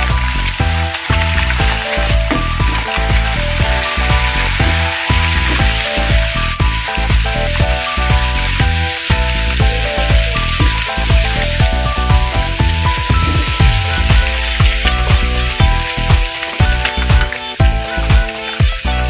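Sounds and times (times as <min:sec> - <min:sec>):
background music: 0:00.0 - 0:19.0
food sizzling in frying pan: 0:00.0 - 0:19.0.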